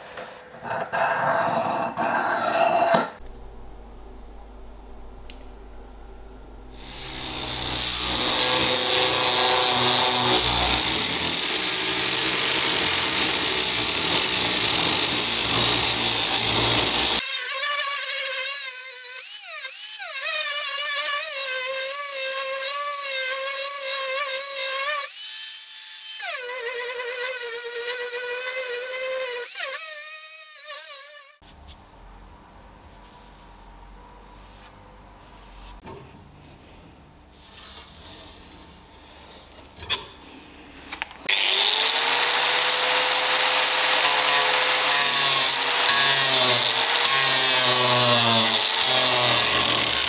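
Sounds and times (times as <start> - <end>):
angle grinder whine: 6.7 - 17.2, 41.3 - 50.0
harsh grinding of steel: 6.7 - 17.2.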